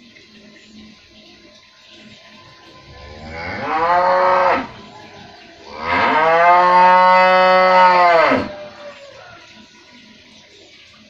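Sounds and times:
cow mooing: 3.0s - 4.8s, 5.7s - 8.8s.

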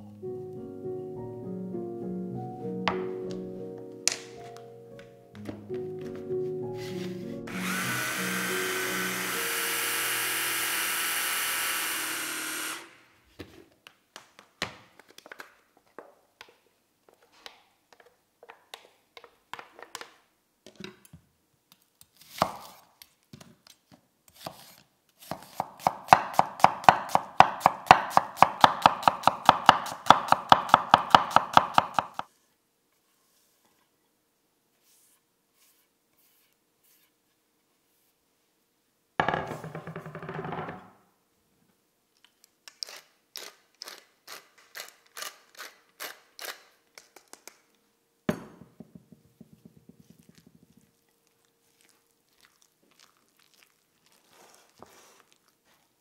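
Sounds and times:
stick blender running: 7.5s - 13.0s
knife chopping on wooden board: 24.4s - 32.3s
wooden spoon scraping and tapping: 49.4s - 51.0s.

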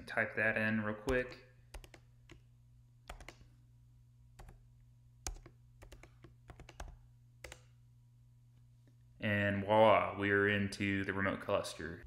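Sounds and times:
steady low hum: 0.0s - 12.0s
keyboard keys clicking: 3.1s - 3.4s, 5.3s - 7.7s.

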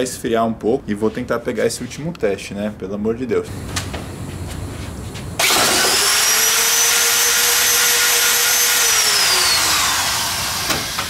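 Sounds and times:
electric drill whining: 5.4s - 11.0s.

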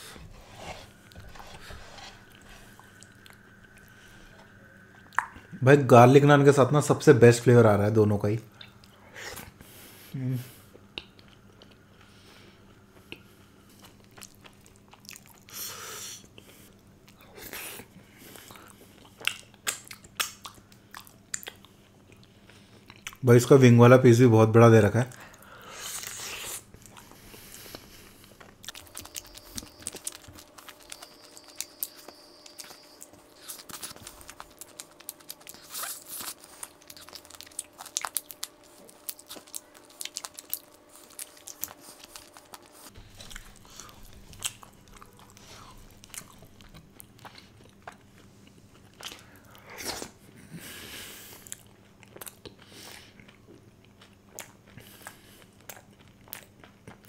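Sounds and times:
wet mouth clicks and crunches: 5.1s - 5.4s, 19.1s - 21.7s, 28.4s - 48.1s, 51.4s - 57.0s
person biting and chewing food: 17.4s - 23.2s, 25.3s - 50.3s, 51.2s - 57.0s.

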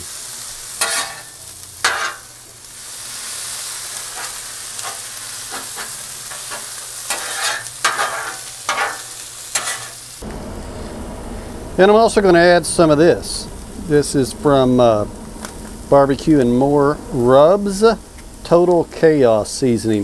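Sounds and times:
food sizzling on a griddle: 0.0s - 20.0s
metal spatula scraping and tapping: 0.8s - 2.2s, 4.2s - 10.0s.

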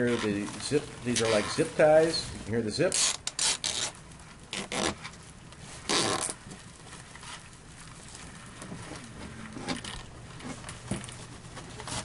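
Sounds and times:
faint rustling of strap: 0.0s - 12.0s
strap zipping through ratchet: 2.9s - 5.0s, 5.9s - 6.4s.

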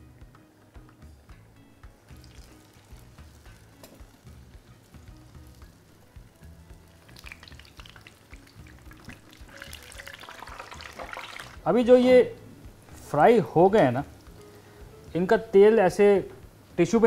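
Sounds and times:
soft background music: 0.0s - 17.0s
food sizzling in hot oil: 1.9s - 11.7s, 14.0s - 15.2s.

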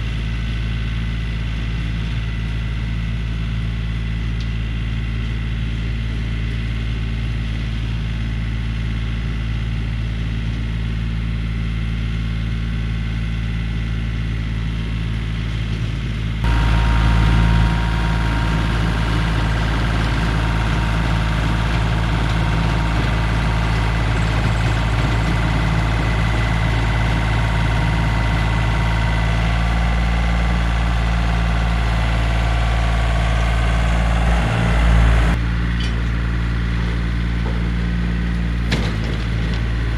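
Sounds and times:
tractor engine and rototiller: 0.0s - 39.9s.

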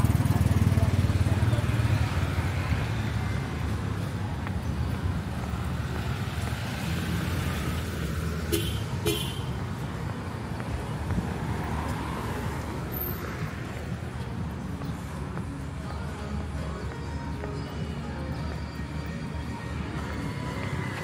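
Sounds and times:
road traffic engine rumble: 0.0s - 21.0s
vehicle horn toots: 8.5s - 9.6s.

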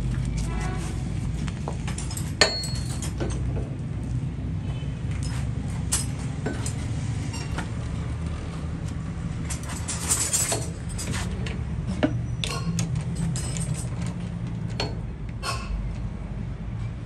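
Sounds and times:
metal clinks and knocks: 1.7s - 3.7s, 5.1s - 7.8s, 9.4s - 15.8s.

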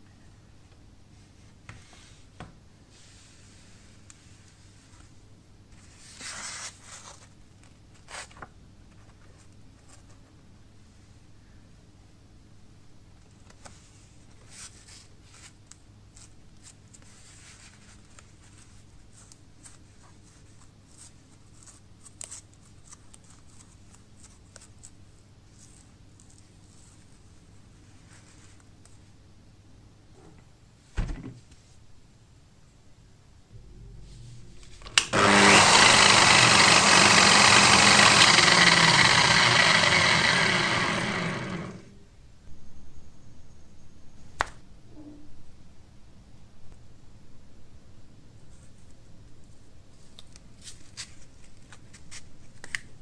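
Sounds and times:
steady low hum: 31.8s - 35.1s
angle grinder spinning: 35.0s - 41.9s.

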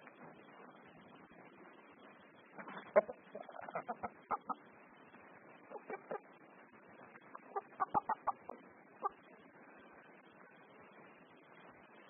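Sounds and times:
chickens clucking: 2.6s - 4.7s, 5.6s - 6.4s, 7.0s - 9.4s.

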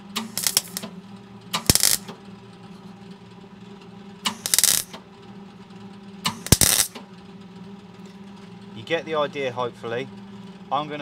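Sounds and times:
steady low hum: 0.0s - 11.0s
welder crackling bursts: 0.1s - 0.9s, 1.6s - 2.1s, 4.3s - 5.0s, 6.3s - 7.0s.

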